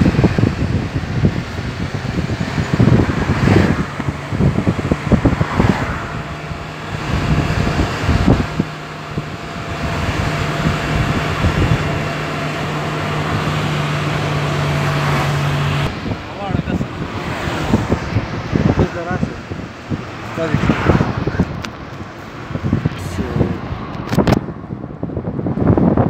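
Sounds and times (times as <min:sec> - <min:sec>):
low engine hum: 0:00.0 - 0:26.0
road and wind noise inside car: 0:00.0 - 0:26.0
wind buffeting microphone: 0:00.0 - 0:26.0.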